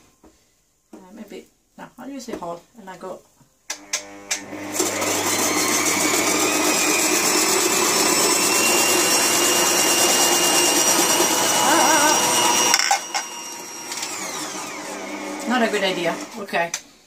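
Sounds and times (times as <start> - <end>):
food processor motor whine: 3.8 - 16.4
shredding disc shredding celery: 4.0 - 16.4.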